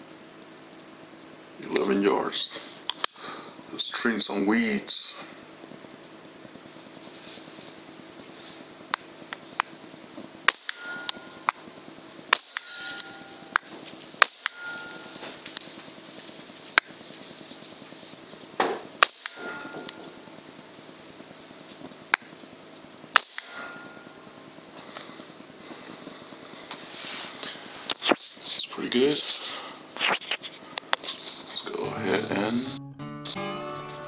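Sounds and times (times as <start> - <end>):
air rifle shots cracking: 10.4 - 11.6, 12.3 - 13.2, 18.9 - 19.9, 23.1 - 23.6.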